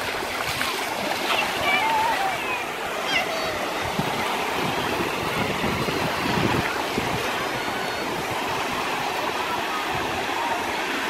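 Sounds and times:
small waves breaking: 0.0s - 11.0s.

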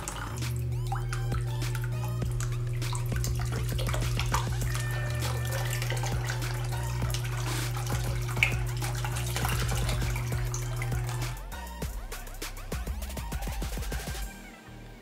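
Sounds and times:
water splashing on water wheel: 0.0s - 12.0s
water falling into a basin: 0.0s - 12.3s
steady low hum: 0.0s - 12.4s.

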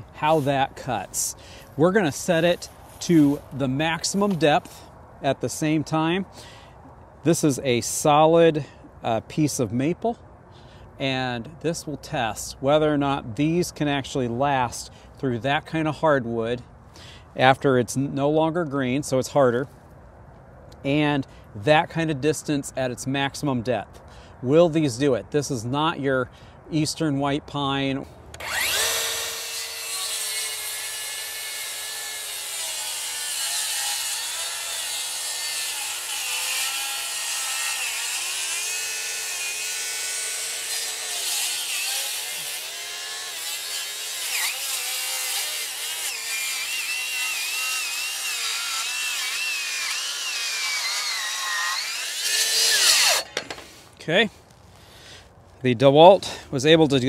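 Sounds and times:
circular saw cutting log: 28.4s - 53.8s.

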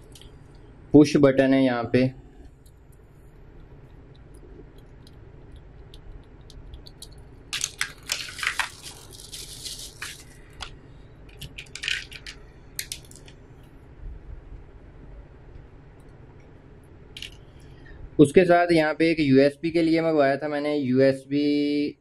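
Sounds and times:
small parts clicking: 3.6s - 10.7s, 11.3s - 13.4s, 17.2s - 17.5s
plastic bags crinkling: 6.8s - 13.4s.

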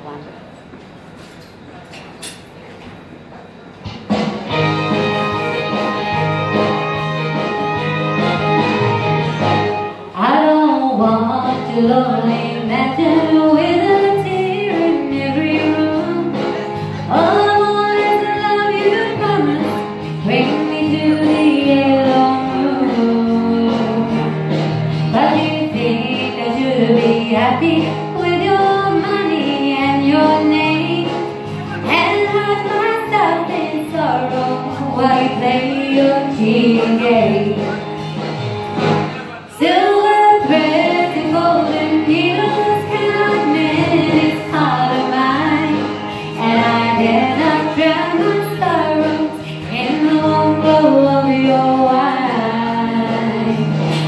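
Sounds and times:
instrumental accompaniment: 3.8s - 54.0s
woman singing country song: 10.2s - 24.5s, 25.1s - 37.8s, 39.5s - 54.0s.

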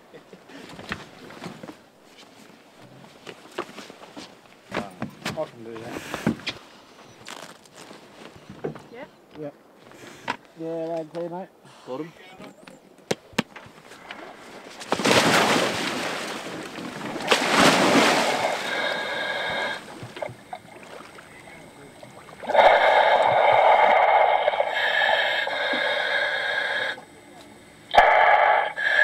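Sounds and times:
splashing and rushing water: 14.0s - 25.8s
radio speaker sound: 21.2s - 29.0s.

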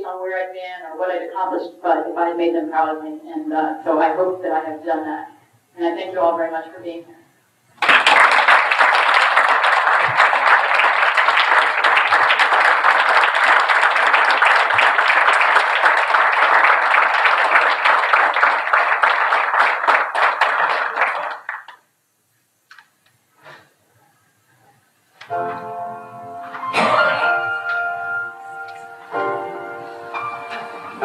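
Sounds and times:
audience applauding: 7.8s - 21.8s.

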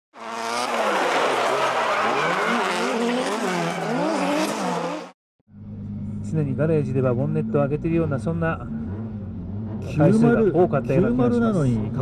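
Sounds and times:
car engine revving: 0.2s - 12.0s
tyres squealing: 0.7s - 5.0s.

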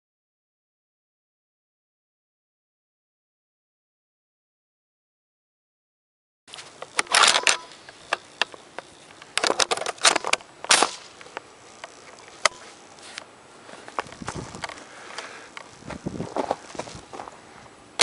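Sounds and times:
sharp clicks of rifle: 6.8s - 12.6s
rustling of gloved hands: 7.7s - 17.8s.

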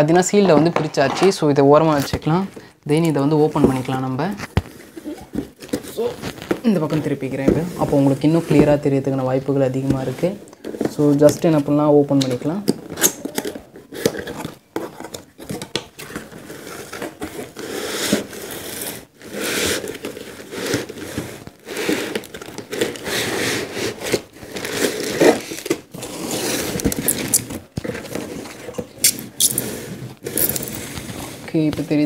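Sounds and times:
foam packing handled: 3.6s - 8.9s, 12.9s - 32.0s.

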